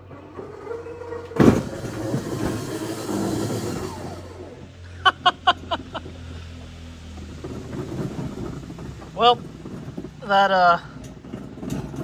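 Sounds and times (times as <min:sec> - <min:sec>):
motor whine winding down: 0:00.0 - 0:04.7.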